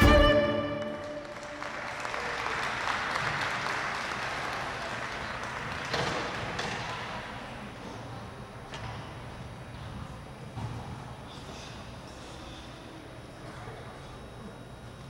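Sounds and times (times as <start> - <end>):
violin music: 0.0 - 1.4
audience applause: 0.0 - 7.6.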